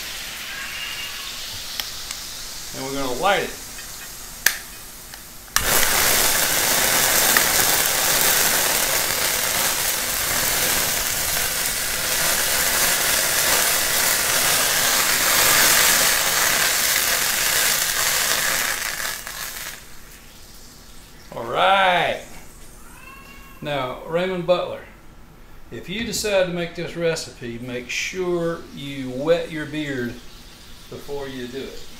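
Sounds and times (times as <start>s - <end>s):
flames rushing: 1.4s - 20.5s
flame igniting whoosh: 1.4s - 20.6s.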